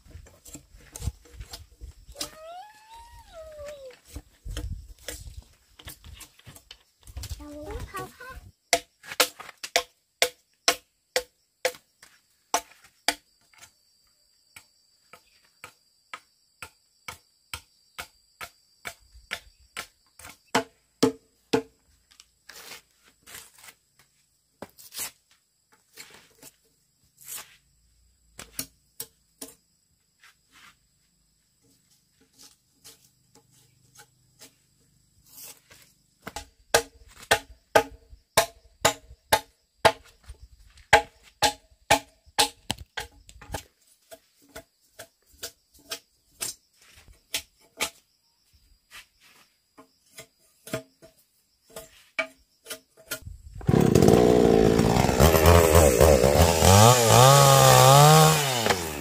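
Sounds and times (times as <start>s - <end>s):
machete chopping wood: 8.7s - 11.8s, 16.6s - 21.8s, 36.2s - 40.1s, 40.9s - 43.7s, 52.7s - 59.0s.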